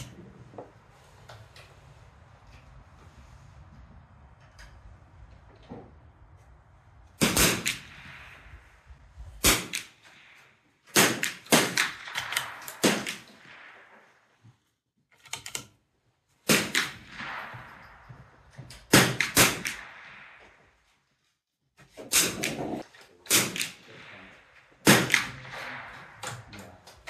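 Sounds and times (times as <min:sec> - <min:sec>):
rifle shots echoing: 0:07.2 - 0:14.4, 0:16.4 - 0:20.9, 0:22.1 - 0:26.6.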